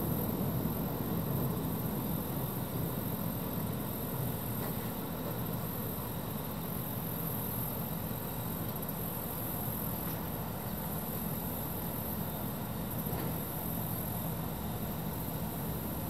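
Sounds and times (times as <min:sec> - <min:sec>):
background rumble and hiss: 0:00.0 - 0:16.0.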